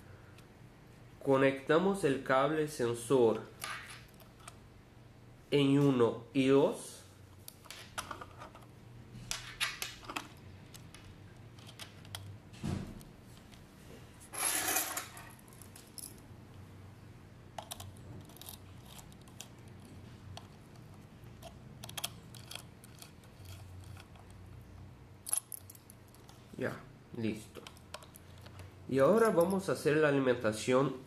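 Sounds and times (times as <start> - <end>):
screwdriver clicking on screw terminals: 21.4 - 24.3.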